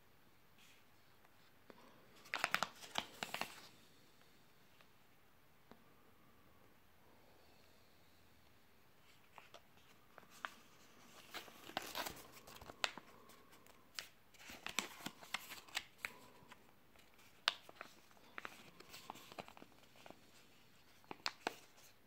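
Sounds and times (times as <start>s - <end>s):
plastic pouch crinkling: 2.2s - 3.7s, 9.3s - 20.2s.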